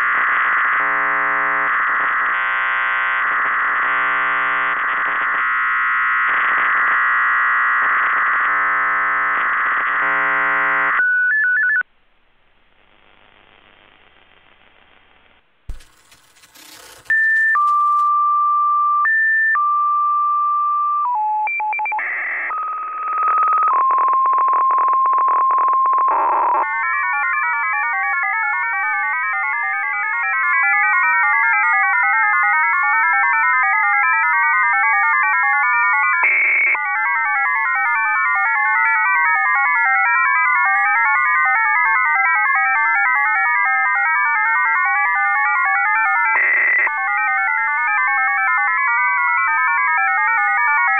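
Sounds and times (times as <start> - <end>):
digital data signal tones: 15.7 - 18.4.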